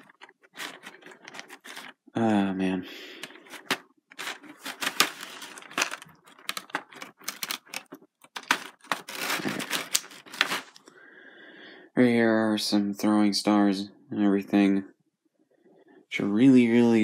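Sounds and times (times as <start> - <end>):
plastic blister tray crinkling: 0.0 - 2.1, 3.1 - 10.9.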